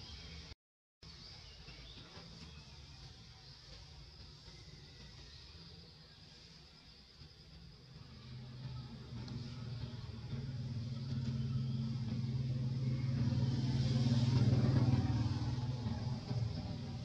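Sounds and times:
passing vehicle engine hum: 0:07.9 - 0:17.0.

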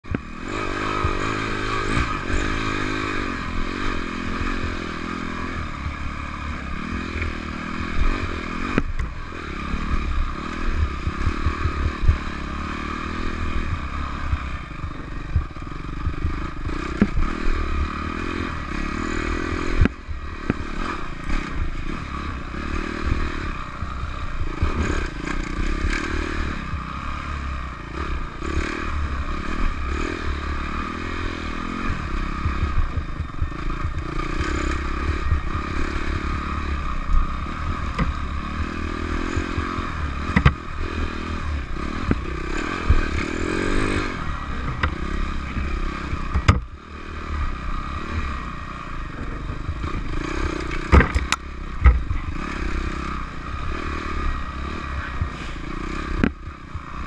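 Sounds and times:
dirt bike engine revving: 0:00.0 - 0:57.0
bike clattering and knocking: 0:50.7 - 0:52.1.

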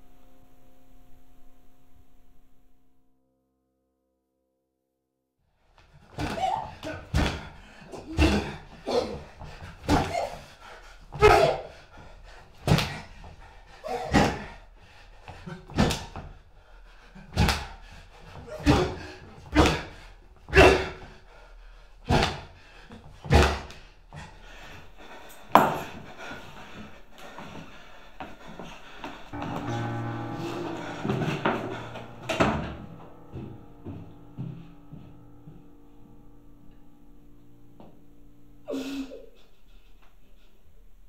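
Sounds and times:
heavy thuds: 0:25.4 - 0:36.6.

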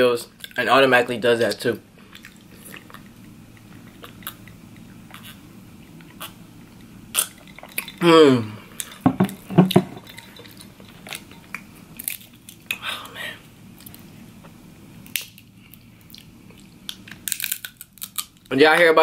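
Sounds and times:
man sighing: 0:08.0 - 0:08.6.

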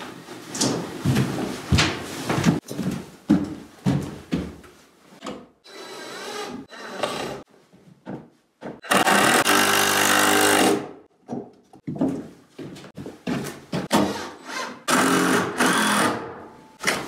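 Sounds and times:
power drill running: 0:08.8 - 0:10.8.

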